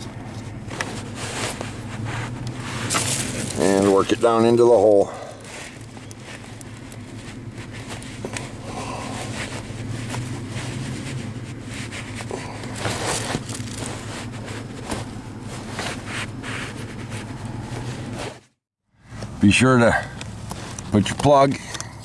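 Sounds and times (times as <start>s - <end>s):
jacket sleeve brushing: 0.0s - 18.6s
rubber grommet rustling and scraping: 0.0s - 19.4s, 20.1s - 22.0s
steady low hum: 0.0s - 22.0s.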